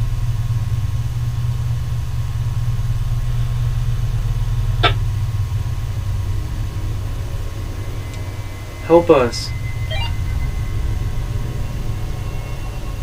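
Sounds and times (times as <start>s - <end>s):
brief short sound: 9.9s - 10.2s.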